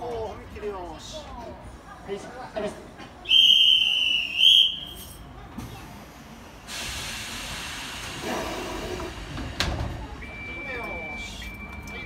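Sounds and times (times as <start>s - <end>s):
high whistle blasts: 3.3s - 5.0s
train steady hiss: 5.9s - 9.6s.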